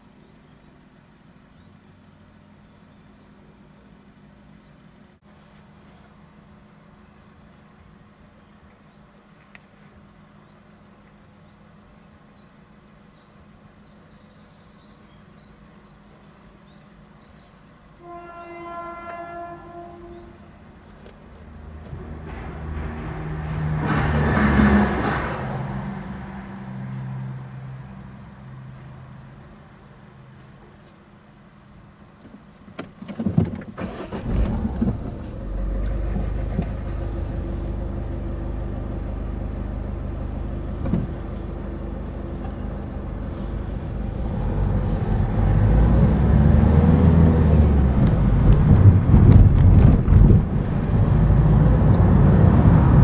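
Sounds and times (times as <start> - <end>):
low rumble of train: 0.0 - 32.0, 33.9 - 53.0
train horn blast: 18.0 - 20.6
vehicle engine starting and idling: 20.7 - 27.7, 33.0 - 53.0.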